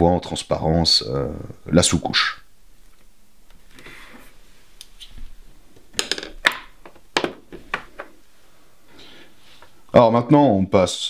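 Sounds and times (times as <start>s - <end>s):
plastic pots clicking and knocking: 6.0s - 8.2s.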